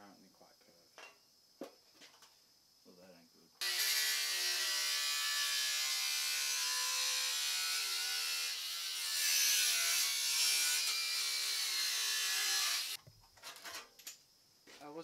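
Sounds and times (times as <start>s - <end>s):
angle grinder cutting steel: 3.6s - 13.0s.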